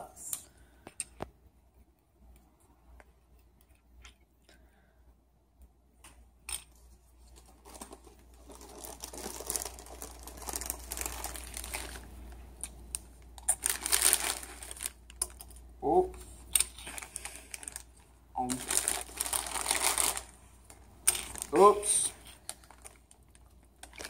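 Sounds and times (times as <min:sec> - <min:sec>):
foil snack bag crinkling: 0:07.6 - 0:15.6, 0:16.7 - 0:24.0.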